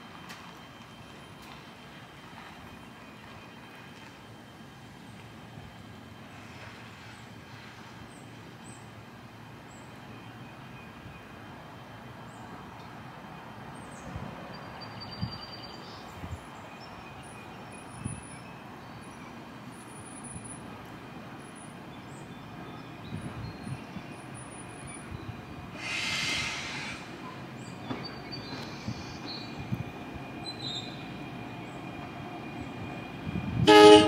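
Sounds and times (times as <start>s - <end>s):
low train rumble: 0.0s - 34.0s
burst of hiss: 25.8s - 27.2s
train wheels knocking at joints: 27.8s - 29.8s.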